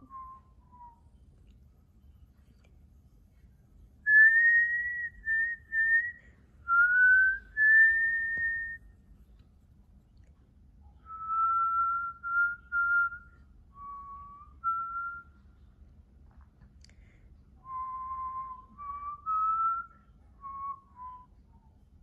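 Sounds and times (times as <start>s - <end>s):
person whistling a tune: 0.0s - 1.0s, 4.1s - 8.8s, 11.1s - 15.4s, 17.6s - 21.4s.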